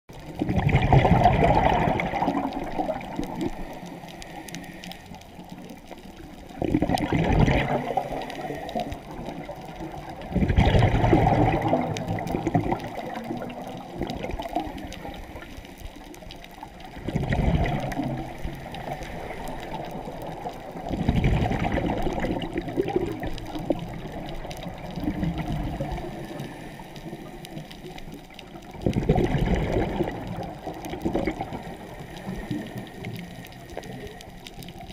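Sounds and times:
underwater bubbling from regulator: 0.1s - 34.9s
low hiss: 1.6s - 6.6s, 17.7s - 21.0s, 22.0s - 29.1s, 29.7s - 34.9s.

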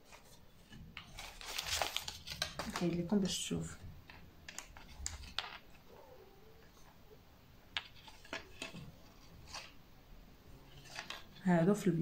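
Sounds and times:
paper rustle: 0.0s - 5.9s, 7.8s - 9.8s, 10.7s - 11.5s.

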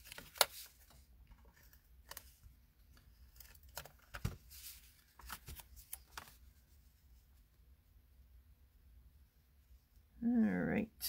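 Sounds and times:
paper rustling: 0.0s - 7.0s.

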